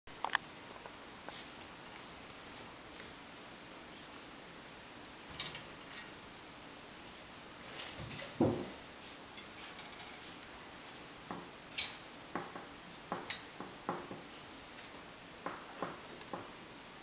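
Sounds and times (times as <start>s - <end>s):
loud thump: 8.4s - 8.8s.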